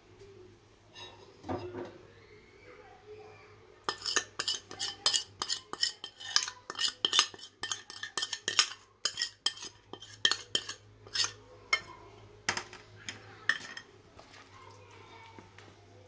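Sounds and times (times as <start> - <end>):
utensil clinking against plate: 3.9 - 13.9.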